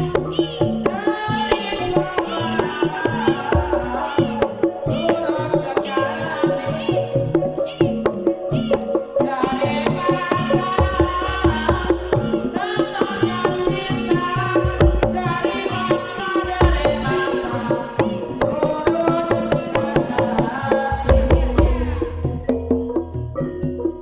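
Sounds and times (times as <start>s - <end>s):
woman singing gliding lines: 0.0s - 22.8s
ringing tuned percussion: 0.0s - 24.0s
hand drum strokes: 8.0s - 24.0s.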